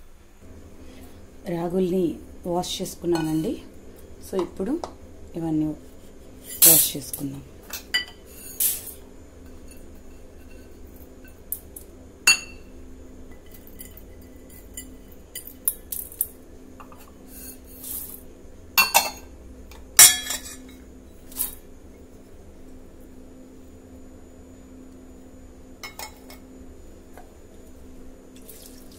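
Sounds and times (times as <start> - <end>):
steel bowls clinking: 20.0 - 20.8.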